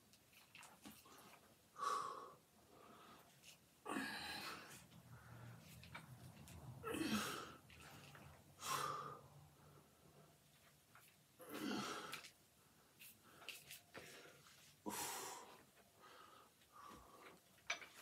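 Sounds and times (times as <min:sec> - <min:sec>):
man breathing out hard: 0:08.6 - 0:09.3.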